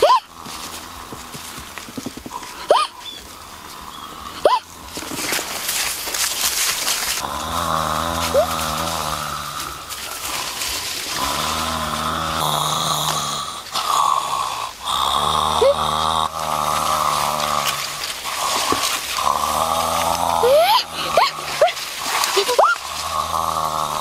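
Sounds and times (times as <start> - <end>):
man snoring loudly: 7.2 - 10.4, 11.1 - 21.5, 22.8 - 24.0.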